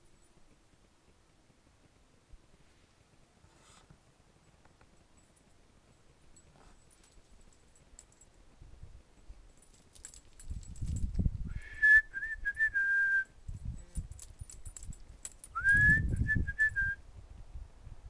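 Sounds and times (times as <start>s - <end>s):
person whistling: 11.5s - 13.3s, 15.6s - 17.0s.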